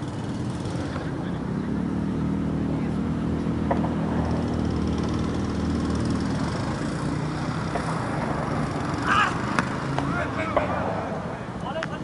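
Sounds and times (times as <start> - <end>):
low engine hum: 0.0 - 12.0
cricket bat hitting ball: 9.5 - 11.0.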